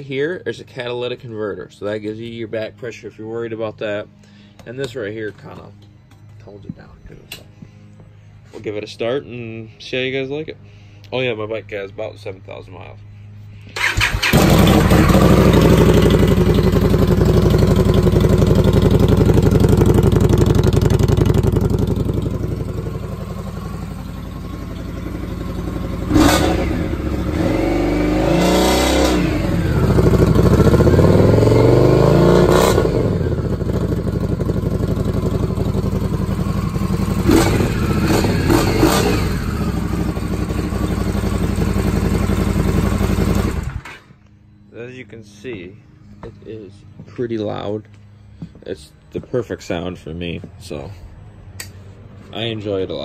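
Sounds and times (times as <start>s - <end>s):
motorcycle engine revving: 13.7s - 44.0s.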